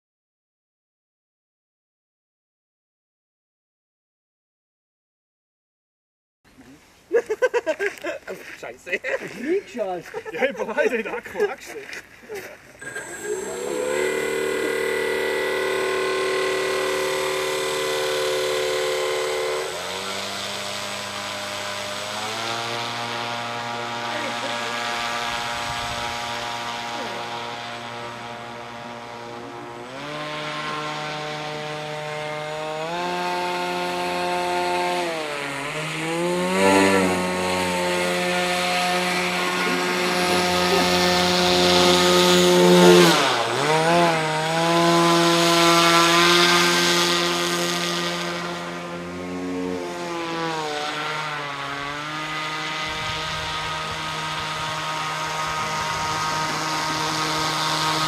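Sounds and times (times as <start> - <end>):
electric motor propeller whine: 12.8 - 58.0.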